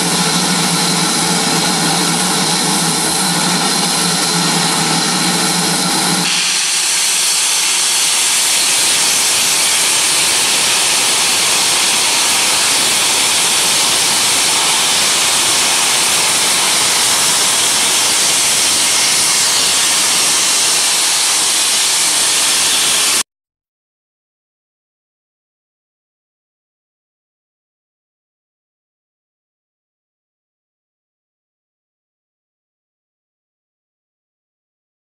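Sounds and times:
low hum: 0.0 - 6.3
steam hissing: 0.0 - 23.2.

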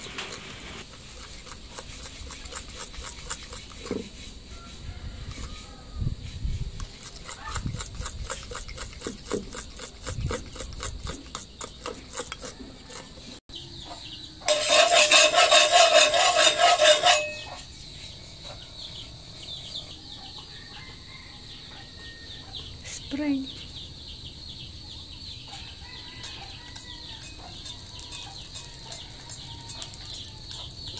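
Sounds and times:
batter stirred in a ceramic bowl: 0.1 - 5.5, 6.7 - 13.4, 14.5 - 17.4, 26.4 - 30.9
rooster crowing: 4.5 - 6.2, 19.9 - 22.6, 25.5 - 30.7.

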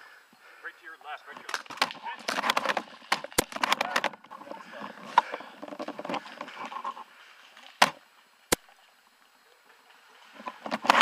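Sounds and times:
rifle handling and rustling: 1.3 - 8.0, 10.3 - 11.0.

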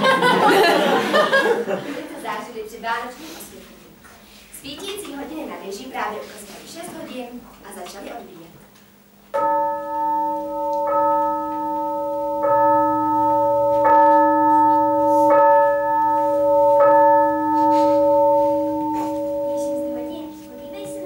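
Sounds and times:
clock bell striking: 9.4 - 21.0.

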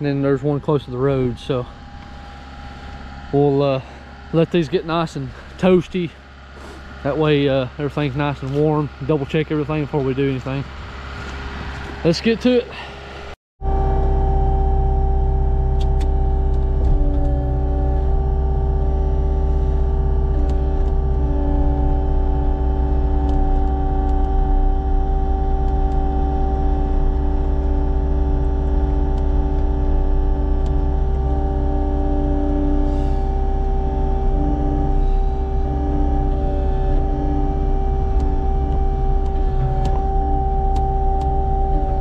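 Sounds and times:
diesel engine droning: 0.0 - 42.0
machine whining tones: 0.0 - 42.0.

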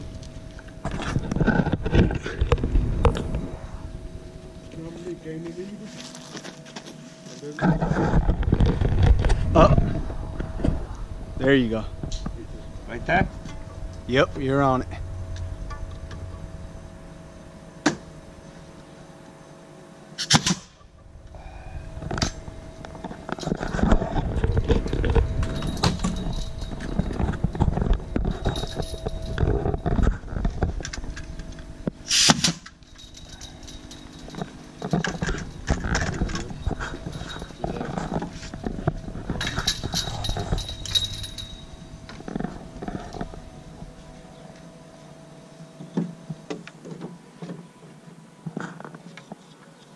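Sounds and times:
faint steady hum: 0.0 - 49.9
nailer firing into wood: 20.2 - 20.7, 32.1 - 32.7.

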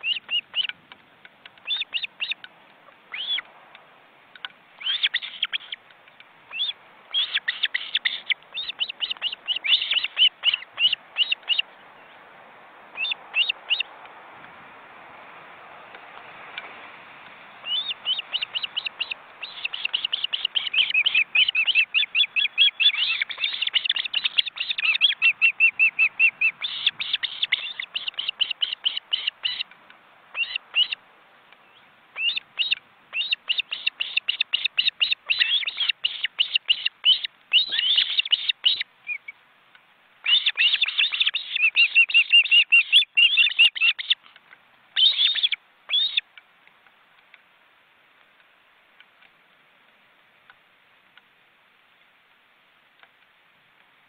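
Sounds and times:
ospreys chirping: 0.0 - 0.7, 1.6 - 2.4, 3.1 - 3.4, 4.8 - 5.8, 6.5 - 11.7, 13.0 - 13.9, 17.6 - 29.7, 30.3 - 31.0, 32.2 - 39.3, 40.2 - 44.2, 45.0 - 46.2.

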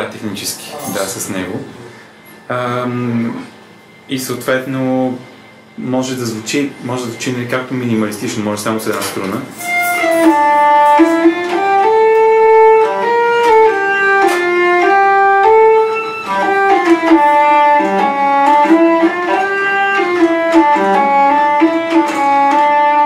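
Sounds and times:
hurdy-gurdy melody: 7.9 - 23.0.

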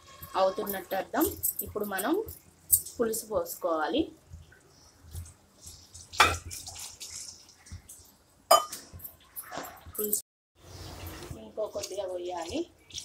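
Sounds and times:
liquid pouring and splashing: 4.3 - 9.9.

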